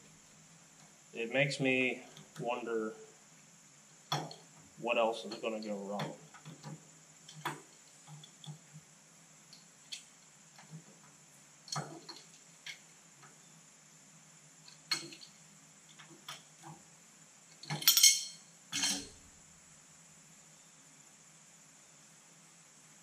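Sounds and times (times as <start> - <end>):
wrench clinking on steel parts: 17.6 - 19.2
metal clanks: 17.7 - 19.2.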